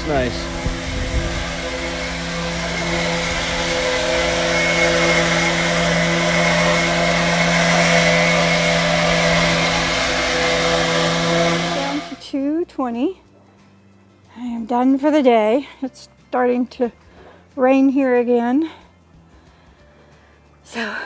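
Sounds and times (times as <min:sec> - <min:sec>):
orbital sander humming: 0:00.0 - 0:12.2.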